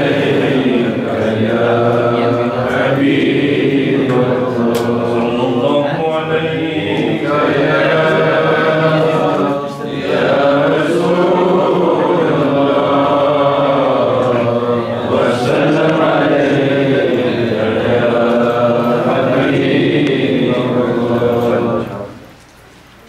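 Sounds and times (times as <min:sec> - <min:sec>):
men chanting: 0:00.0 - 0:22.2.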